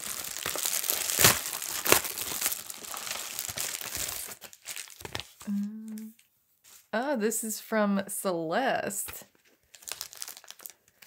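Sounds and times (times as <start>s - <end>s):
plastic envelope tearing: 0.0s - 5.5s, 9.6s - 11.0s
plastic crinkling: 0.0s - 5.6s, 9.3s - 11.0s.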